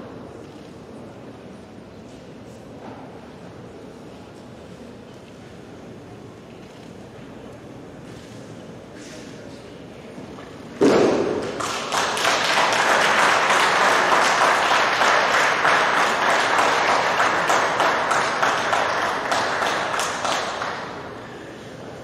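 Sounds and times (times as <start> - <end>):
audience applause: 11.4 - 21.2.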